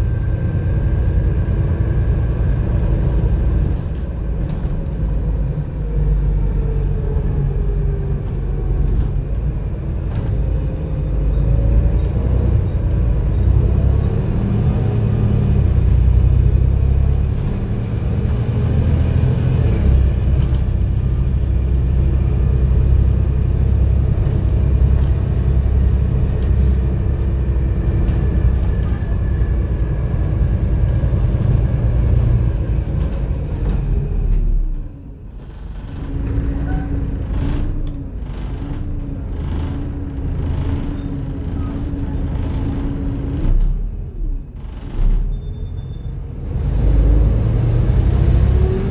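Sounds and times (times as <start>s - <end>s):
bus diesel engine droning: 0.0s - 48.9s
short high squeaks: 45.3s - 46.2s.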